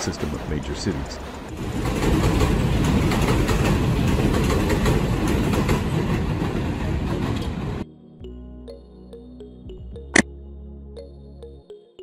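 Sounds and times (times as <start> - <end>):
subway train rumble: 0.0 - 7.9.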